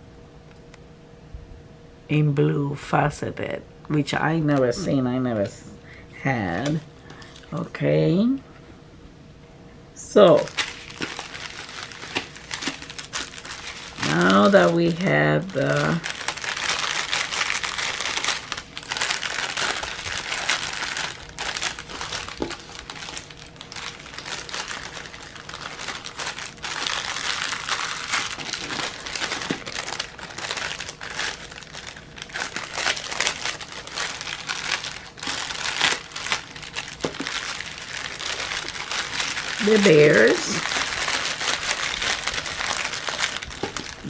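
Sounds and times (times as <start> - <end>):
plastic bags crinkling: 10.2 - 44.0.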